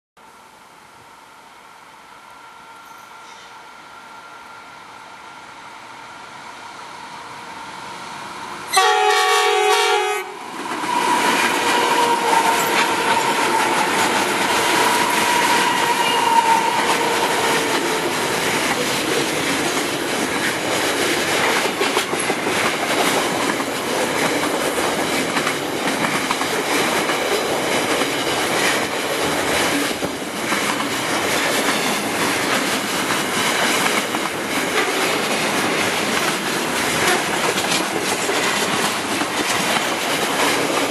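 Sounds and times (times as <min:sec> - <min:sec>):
train horn blast: 0:08.7 - 0:18.2
train wheels clattering over rails: 0:08.7 - 0:40.9.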